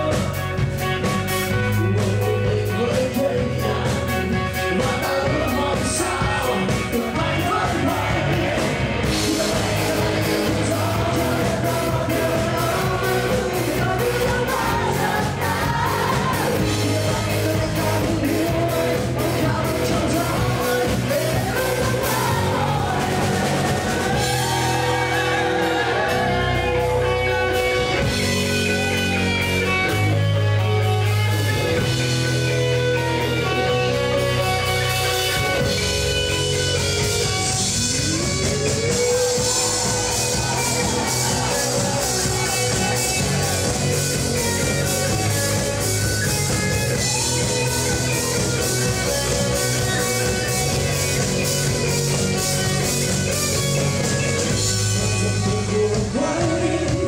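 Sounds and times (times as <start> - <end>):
drum kit: 0.0 - 57.0
electric guitar: 0.0 - 57.0
man singing: 1.5 - 29.1, 36.7 - 45.9, 54.6 - 57.0.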